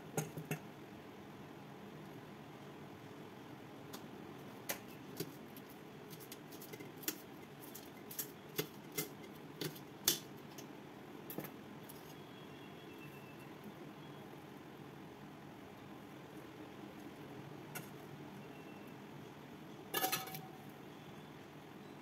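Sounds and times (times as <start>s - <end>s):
clinks of bowls and plates: 20.0s - 20.5s.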